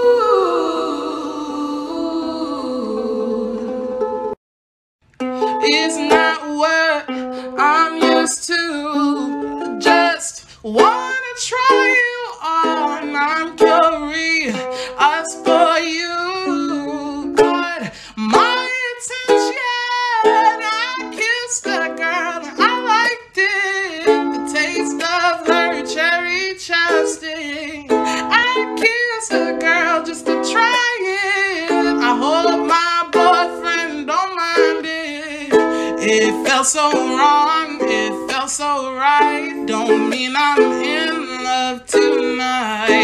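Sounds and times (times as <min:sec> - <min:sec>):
woman singing a pop song: 0:00.0 - 0:03.8, 0:05.4 - 0:43.0
strummed strings: 0:05.1 - 0:43.0.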